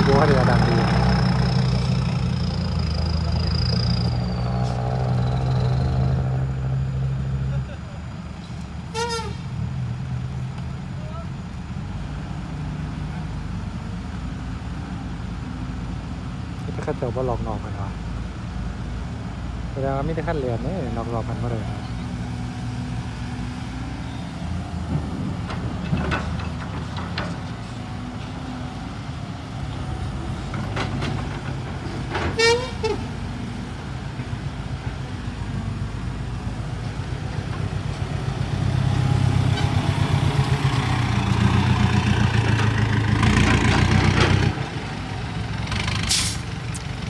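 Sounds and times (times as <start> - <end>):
dump truck engine approaching: 0.0 - 47.0
heavy diesel engines running: 0.0 - 47.0
horn toot: 8.9 - 9.4, 32.3 - 33.1.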